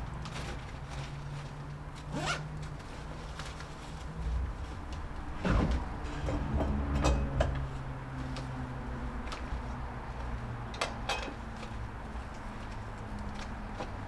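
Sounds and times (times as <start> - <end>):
zipper being pulled: 2.0 - 2.5.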